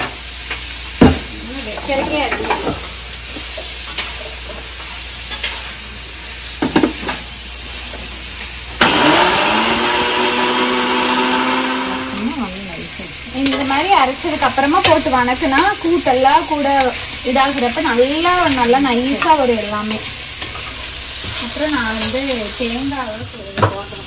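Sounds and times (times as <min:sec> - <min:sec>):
mixer grinder motor humming: 0:08.8 - 0:12.9.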